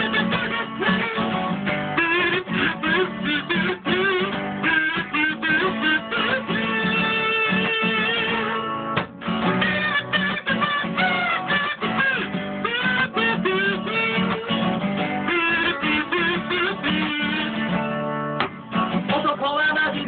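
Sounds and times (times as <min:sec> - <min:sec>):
man singing: 0:00.0 - 0:01.4, 0:15.3 - 0:17.8, 0:19.0 - 0:20.0
strummed acoustic guitar: 0:00.0 - 0:20.0.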